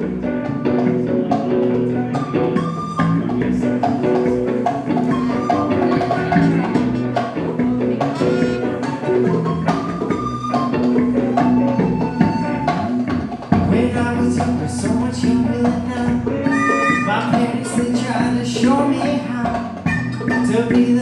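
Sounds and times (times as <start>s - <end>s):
electric bass: 0.0s - 21.0s
electric guitar: 0.0s - 21.0s
percussion hits: 0.0s - 21.0s
wooden flute melody: 2.0s - 13.3s, 16.4s - 18.0s, 19.8s - 21.0s.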